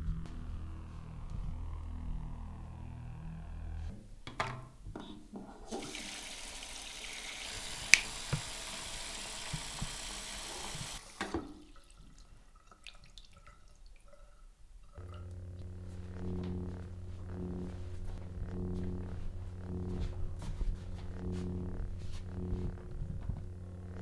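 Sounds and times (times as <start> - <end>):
tap running into sink: 5.7 - 11.6.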